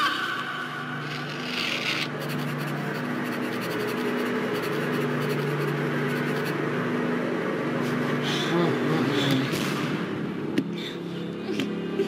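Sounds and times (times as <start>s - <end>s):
low steady droning tone: 0.0s - 12.0s
pen scratching on paper: 1.4s - 6.6s.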